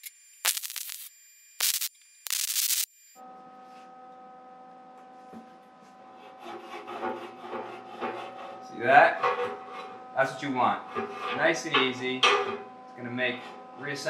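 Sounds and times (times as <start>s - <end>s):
welding crackling hiss: 0.0s - 2.9s.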